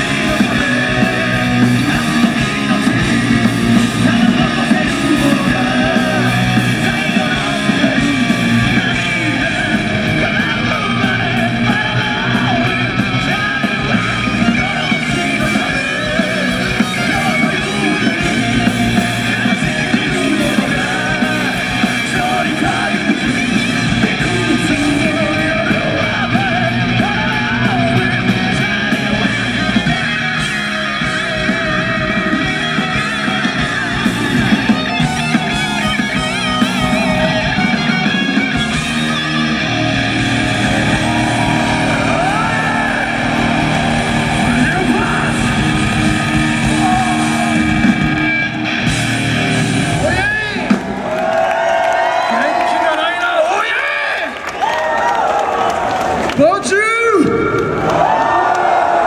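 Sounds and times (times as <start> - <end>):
man singing: 0.0 - 34.0
electric bass: 0.0 - 51.6
drums: 0.0 - 59.0
electric guitars: 0.0 - 59.0.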